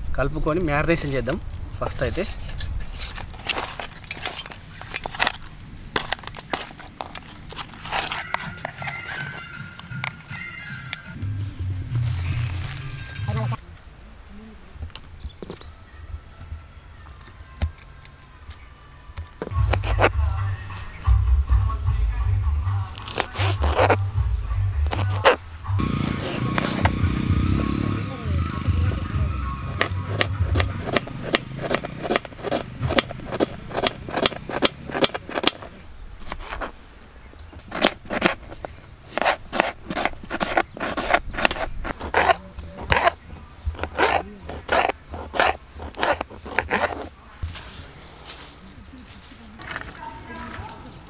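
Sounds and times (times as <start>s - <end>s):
knife slicing chillies: 29.7s - 36.7s, 37.6s - 43.2s, 43.8s - 47.1s
knife chopping on plastic board: 29.8s - 35.7s.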